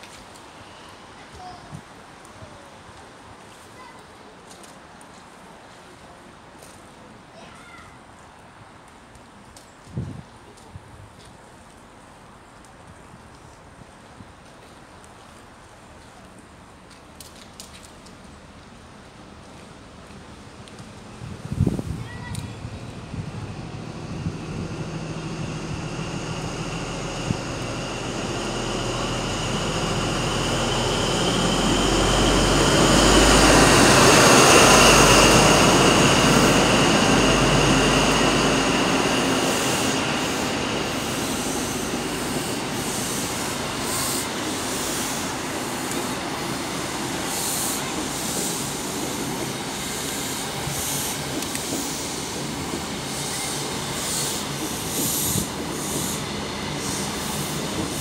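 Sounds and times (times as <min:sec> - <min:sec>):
train wheels rumbling: 0:17.5 - 0:58.0
diesel locomotive passing with whine: 0:17.9 - 0:58.0.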